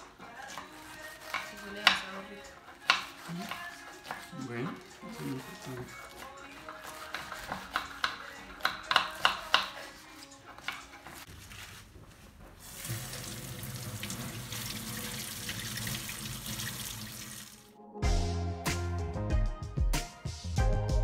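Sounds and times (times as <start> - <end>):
knife chopping on cutting board: 0.5 - 2.2, 2.8 - 4.3, 6.0 - 11.2
kitchen tap running: 12.6 - 17.7.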